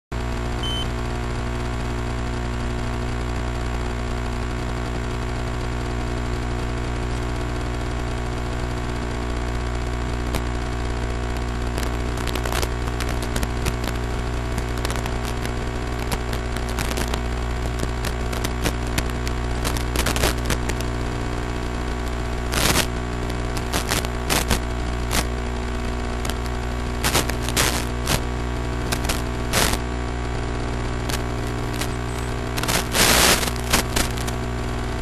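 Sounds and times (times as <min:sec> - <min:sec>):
electronic hiss and buzzing hum: 0:00.2 - 0:35.0
sharp radio crackles: 0:11.4 - 0:35.0.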